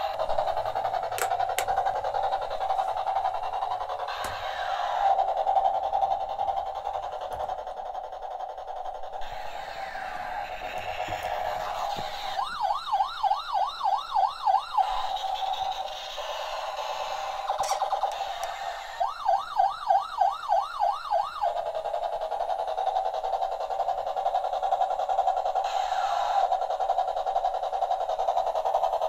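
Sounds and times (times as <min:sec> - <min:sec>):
toy electronic siren yelps: 0:03.5 - 0:05.4, 0:09.2 - 0:21.6.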